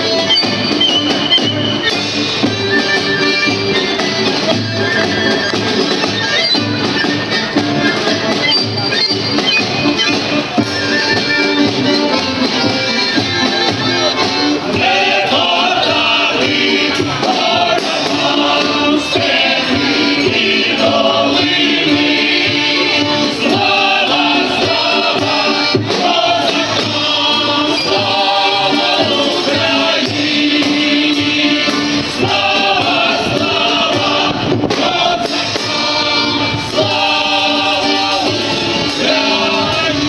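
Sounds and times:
musical accompaniment: 0:00.0 - 0:40.0
choir singing: 0:13.2 - 0:40.0.

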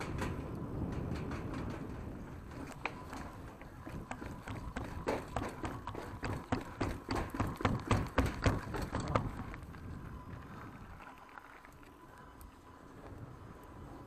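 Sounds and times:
bike rattling over metal grating: 0:00.0 - 0:11.6
tyres rolling on dirt trail: 0:00.0 - 0:14.0.

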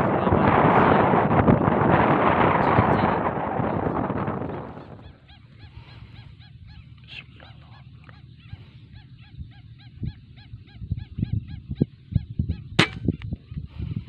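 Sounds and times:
air rifle shot: 0:12.8 - 0:13.1.

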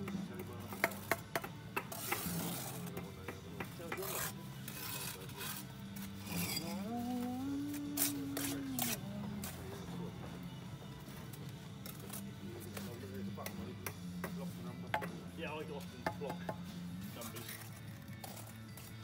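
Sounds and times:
trowel knocking on bricks: 0:00.0 - 0:04.4, 0:13.4 - 0:15.2
background music: 0:00.0 - 0:19.0
trowel scraping mortar: 0:01.8 - 0:09.6, 0:17.2 - 0:19.0.

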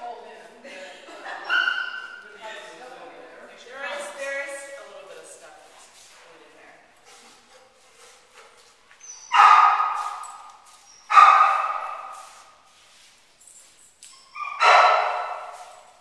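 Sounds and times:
dog barking: 0:01.4 - 0:02.2, 0:09.3 - 0:10.2, 0:11.1 - 0:12.2, 0:14.4 - 0:15.7.

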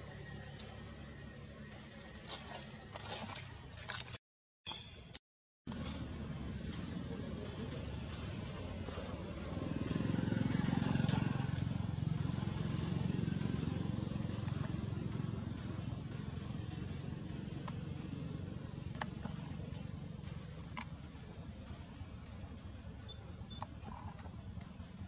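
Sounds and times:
passing vehicle engine rumble: 0:05.7 - 0:25.0.

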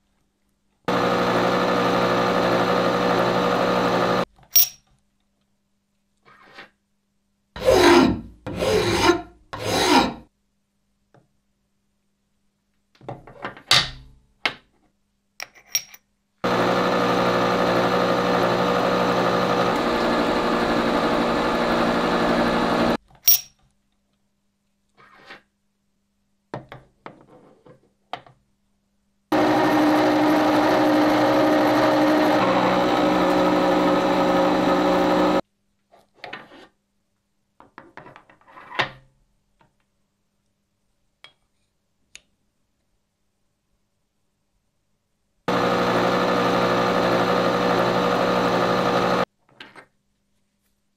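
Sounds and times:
milling machine cutting steel: 0:00.9 - 0:04.2, 0:16.5 - 0:23.0, 0:29.3 - 0:35.4, 0:45.5 - 0:49.2.

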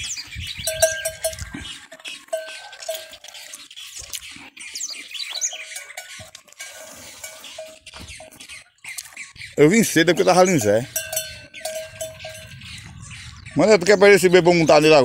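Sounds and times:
high bird chirps: 0:00.0 - 0:15.0.

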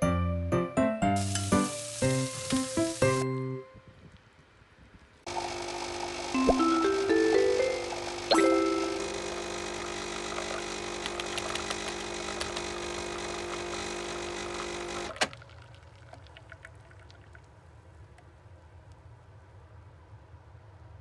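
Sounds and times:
coffee machine pump humming: 0:05.3 - 0:15.4
coffee machine click: 0:10.4 - 0:12.7
drips into coffee: 0:15.4 - 0:17.4.

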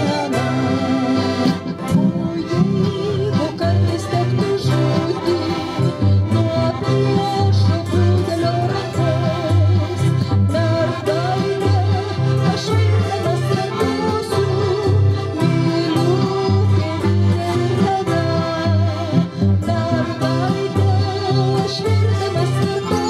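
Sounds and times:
button accordion: 0:00.0 - 0:23.0
person singing: 0:00.0 - 0:23.0
steady repeating bass: 0:00.0 - 0:23.0.

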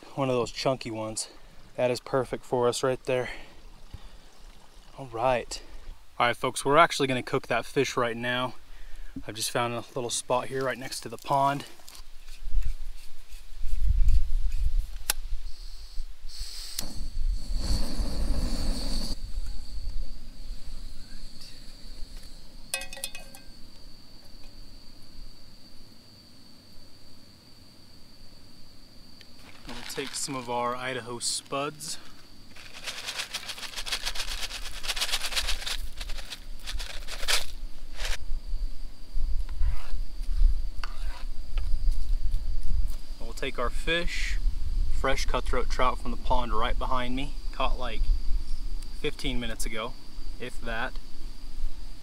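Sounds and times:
gas hissing: 0:15.5 - 0:23.2
dried potatoes pouring into pan: 0:29.4 - 0:37.5.

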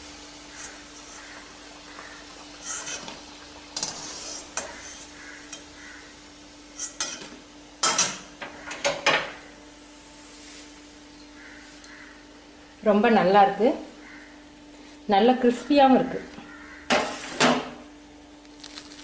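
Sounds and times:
faint sizzle of hot oil: 0:00.0 - 0:19.0
steel skimmer scraping a pan: 0:02.6 - 0:03.2, 0:03.8 - 0:05.2, 0:16.9 - 0:17.7.

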